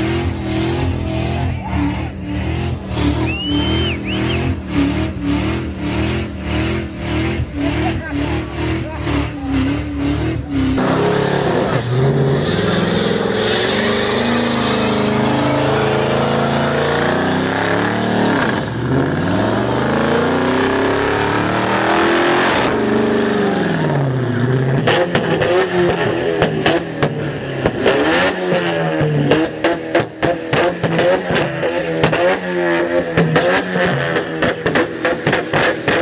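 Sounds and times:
car engine revving hard: 0:00.0 - 0:36.0
exhaust pops and bangs: 0:28.6 - 0:32.3, 0:33.1 - 0:36.0.

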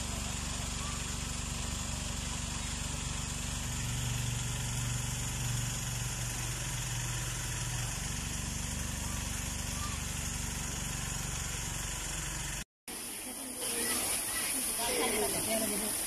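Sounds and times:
small engine idling: 0:00.0 - 0:16.0.

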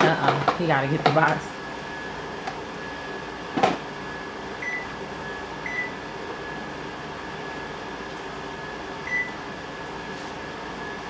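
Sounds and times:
oven keypad beeps: 0:04.6 - 0:06.0, 0:09.0 - 0:09.4.

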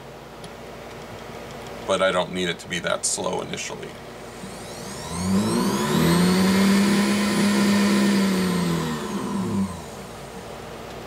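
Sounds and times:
small motor whining: 0:04.2 - 0:10.5.

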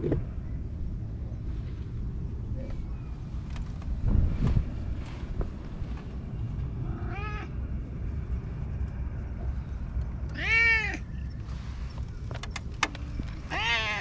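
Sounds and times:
steady low rumble: 0:00.0 - 0:14.0
cat meowing: 0:06.9 - 0:07.6, 0:10.3 - 0:11.1, 0:13.4 - 0:14.0.

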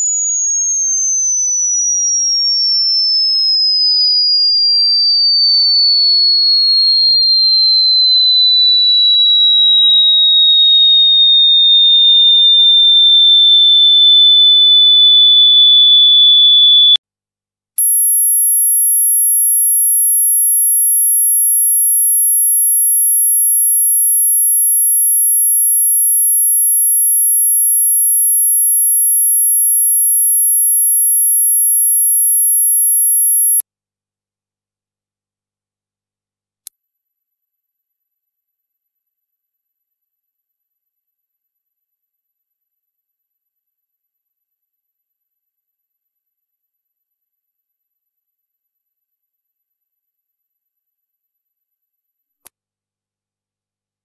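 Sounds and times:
steady high-pitched tone: 0:36.7 - 0:52.5.

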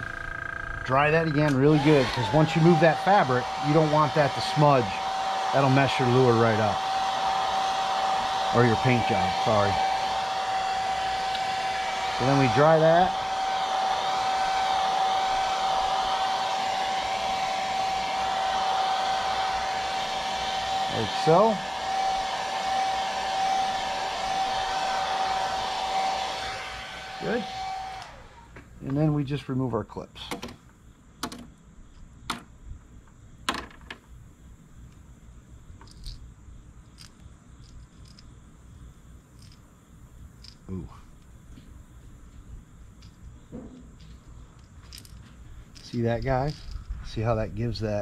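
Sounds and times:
hair dryer running: 0:01.4 - 0:28.7.

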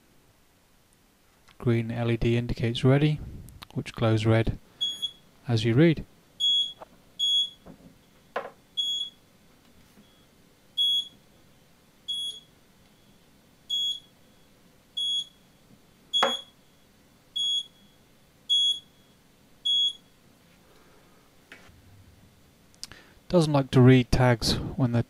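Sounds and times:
knock: 0:08.4 - 0:08.6
short high beeps: 0:16.2 - 0:16.6.

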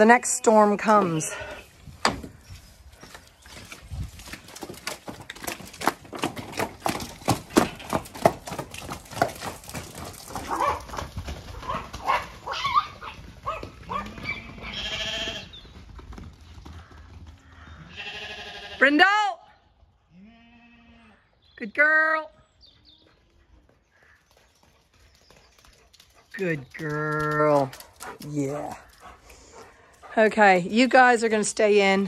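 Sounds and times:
hooves trotting on ground: 0:00.0 - 0:18.7, 0:22.6 - 0:32.0
short bleats: 0:14.6 - 0:15.5, 0:17.9 - 0:18.9, 0:20.1 - 0:21.2.

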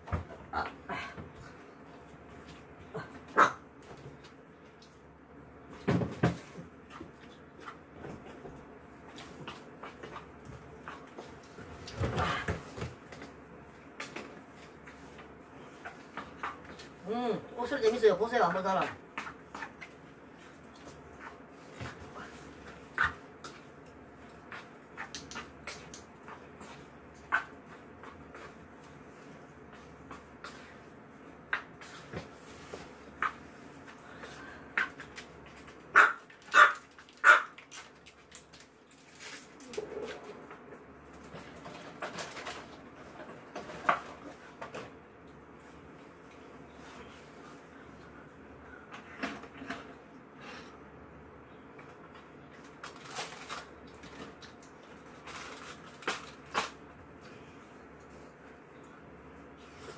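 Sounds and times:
dog barking: 0:03.4 - 0:03.6
thump and rustle: 0:05.8 - 0:06.6.

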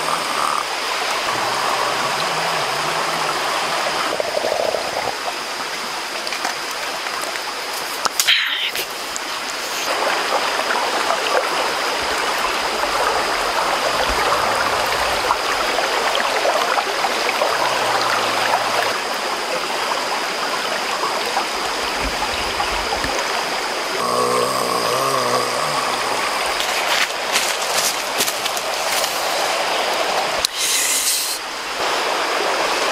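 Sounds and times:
stream flowing over stones: 0:00.0 - 0:32.9.

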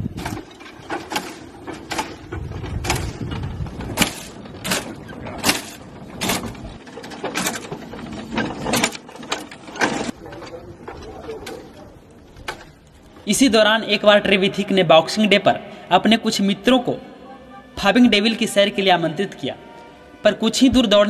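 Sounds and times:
steam locomotive puffing: 0:00.0 - 0:10.1
low engine rumble: 0:00.0 - 0:13.3.

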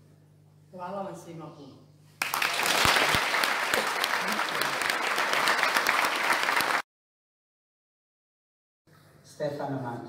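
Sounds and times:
audience applauding: 0:02.2 - 0:06.8.

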